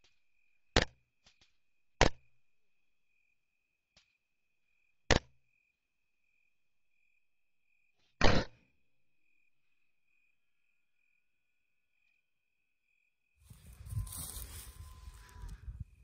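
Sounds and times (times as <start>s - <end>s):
rifle shots: 8.2s - 8.5s
faint high whine: 13.4s - 16.0s.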